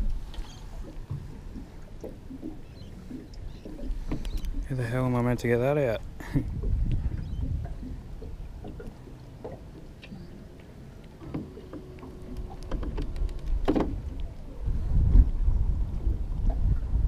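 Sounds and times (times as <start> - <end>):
water against a boat: 0.0 - 17.0
wind on the microphone: 6.2 - 8.8, 12.3 - 17.0.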